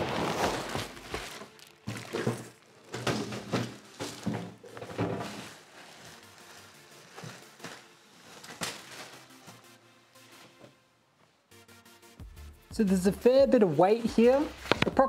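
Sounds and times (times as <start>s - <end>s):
plastic wrapping crinkling: 0.0s - 10.6s.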